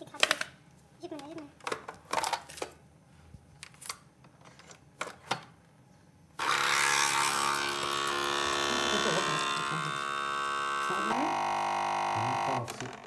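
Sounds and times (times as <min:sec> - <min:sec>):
coffee machine pump buzzing: 0:06.4 - 0:13.0.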